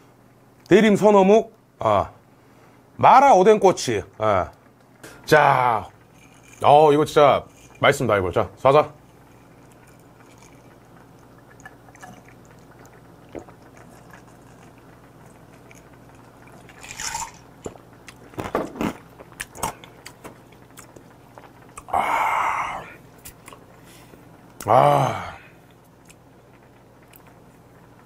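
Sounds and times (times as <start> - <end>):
man swallowing and gulping: 8.9 - 28.0
loud voiced exhale: 21.9 - 23.0, 24.6 - 25.6.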